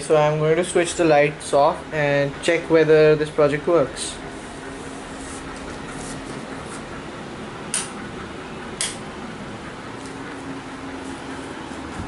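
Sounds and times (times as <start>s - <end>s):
steady background hum: 0.0s - 12.0s
light switch clicks: 8.8s - 9.0s.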